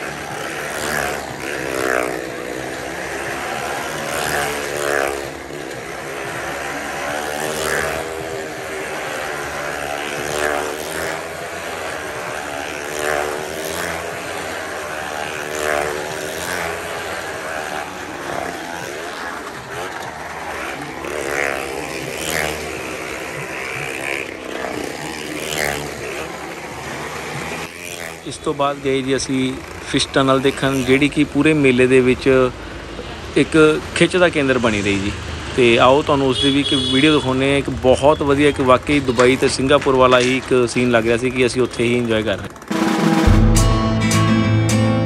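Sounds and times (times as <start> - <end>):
motorcycle engines running hard: 0.0 - 43.6.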